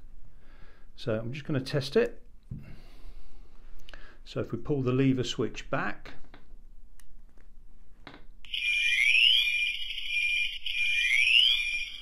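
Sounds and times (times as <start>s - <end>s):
electronic alarm tone with rising sweep: 8.5s - 12.0s.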